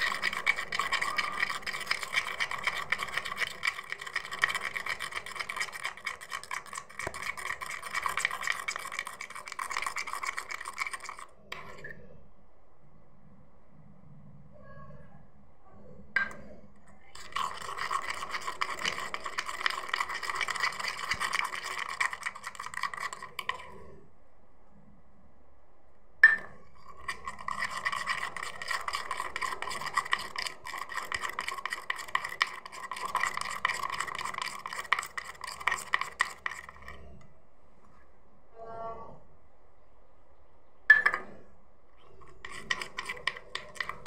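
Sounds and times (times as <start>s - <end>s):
spoon scraping steel bowl: 0.0s - 12.0s, 17.2s - 23.9s, 26.4s - 37.1s, 42.0s - 44.0s.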